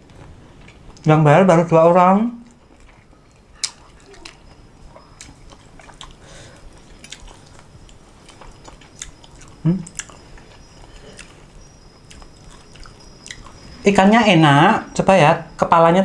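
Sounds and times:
person chewing crisp food: 0.0 - 1.1, 2.4 - 13.8.

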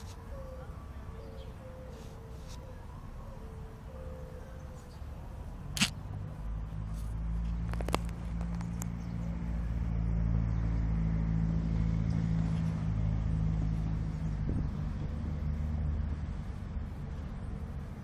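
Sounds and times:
engine humming steadily: 0.0 - 18.0
sharp clicks: 5.8 - 6.0.

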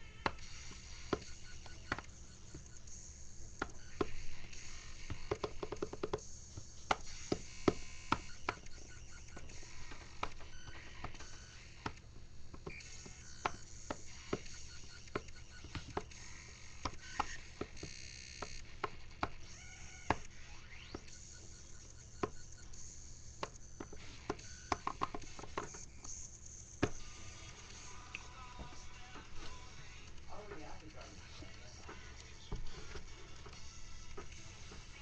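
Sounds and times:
fingers tapping controller buttons: 0.0 - 27.1.

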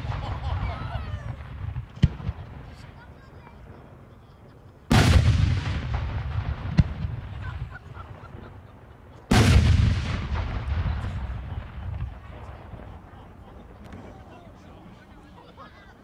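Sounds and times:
sharp crack: 0.0 - 3.1, 4.9 - 8.5, 9.2 - 13.2.

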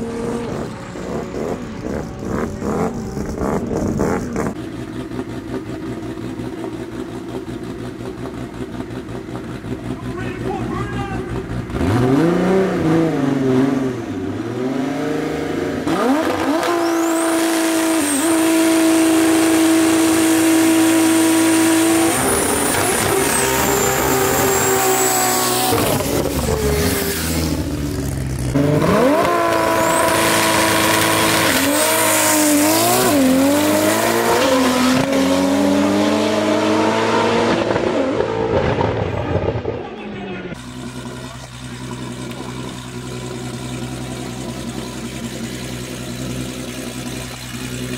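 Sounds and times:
car engine revving: 0.0 - 47.9
tyres spinning and squealing: 21.2 - 27.4, 29.5 - 35.4.

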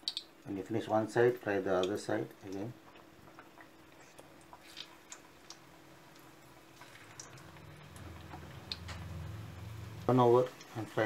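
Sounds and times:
banana pieces frying in oil: 0.0 - 11.0
low hum: 6.9 - 10.3.

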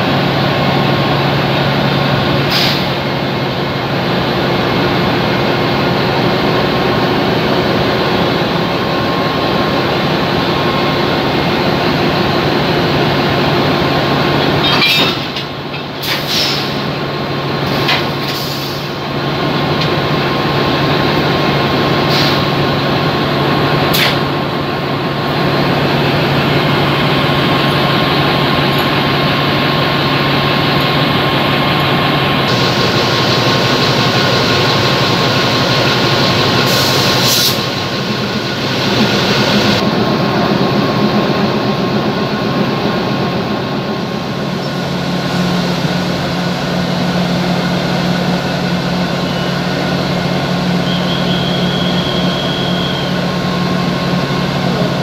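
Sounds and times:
locomotive engine idling: 18.8 - 55.0.

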